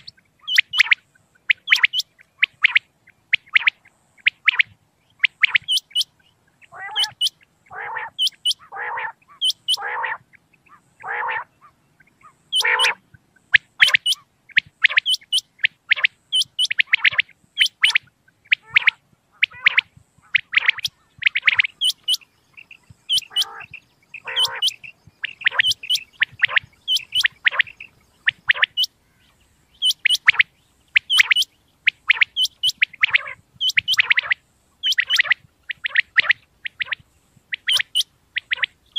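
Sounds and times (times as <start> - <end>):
lower rougher bird calls: 0.0 - 38.9
quail high sharp calls: 0.0 - 38.9.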